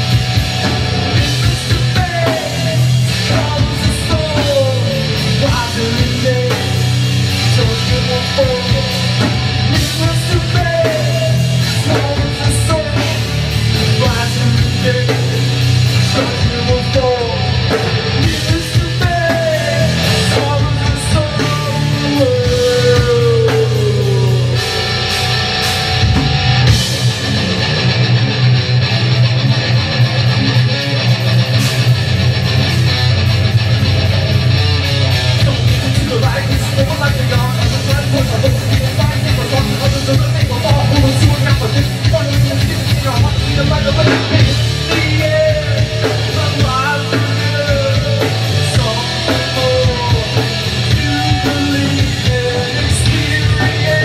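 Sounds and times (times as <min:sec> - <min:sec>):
heavy rock guitars and drums: 0:00.0 - 0:54.0
person singing: 0:01.0 - 0:25.1, 0:35.1 - 0:54.0.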